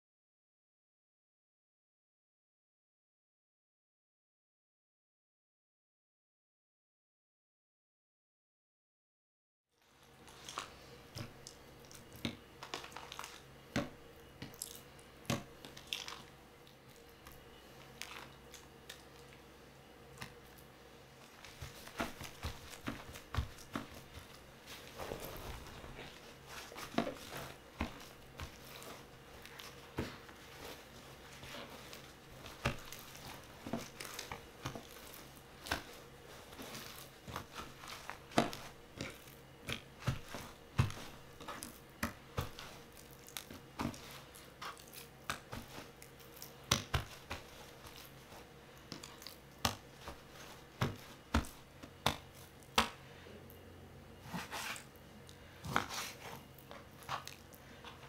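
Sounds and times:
faint steady hum: 9.8 - 58.0
paper crinkling: 12.6 - 13.5, 21.3 - 39.4.

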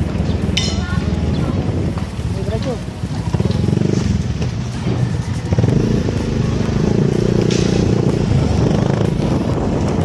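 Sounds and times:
motor scooter engine running: 3.0 - 10.0.

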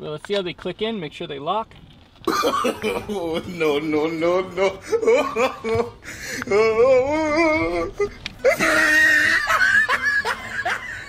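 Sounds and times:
person wailing: 2.3 - 11.0
person whimpering sobs: 2.4 - 11.0.

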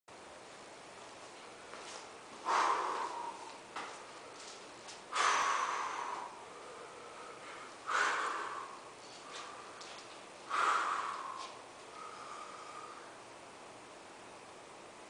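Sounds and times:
man breathing forcefully: 2.4 - 4.5, 5.1 - 13.3.

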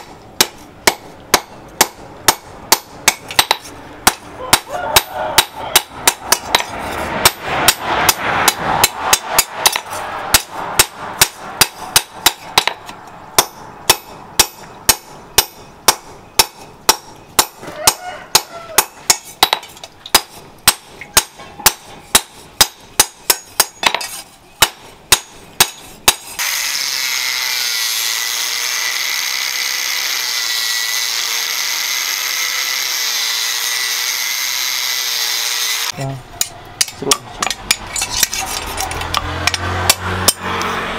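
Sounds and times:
hammer striking steel on anvil: 0.0 - 26.4, 39.1 - 40.7
angle grinder whining: 26.4 - 36.0.

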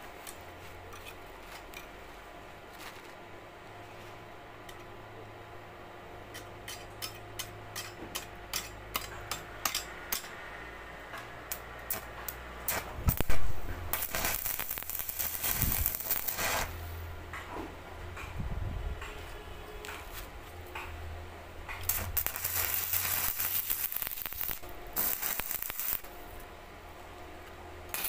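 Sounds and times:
crackling welding arc: 2.7 - 3.2, 11.5 - 17.1, 21.7 - 26.4
welding arc striking crack: 11.5 - 16.8, 21.7 - 26.2.

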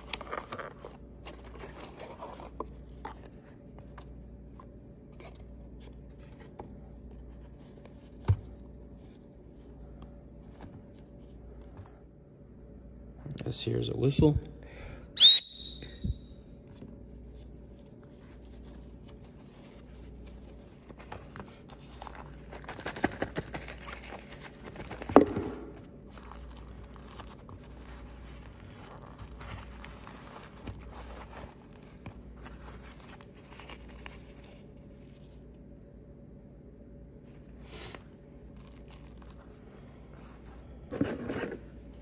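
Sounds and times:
plastic sheet crinkling: 25.9 - 34.6, 38.5 - 39.7.

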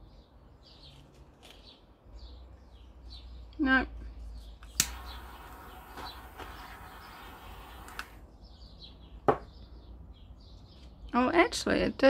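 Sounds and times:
birds chirping faintly: 0.0 - 12.0
sharp click: 4.6 - 5.2
steady hiss: 4.8 - 8.2.

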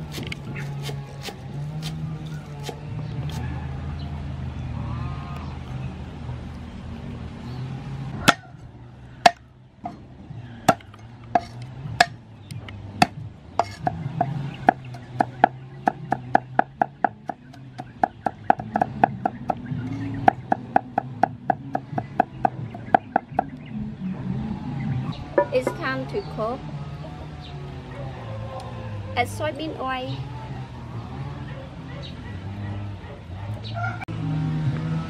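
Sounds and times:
cleaver chopping on wooden block: 0.0 - 3.4, 8.2 - 8.5, 9.2 - 9.4, 10.7 - 12.2, 13.0 - 23.5.

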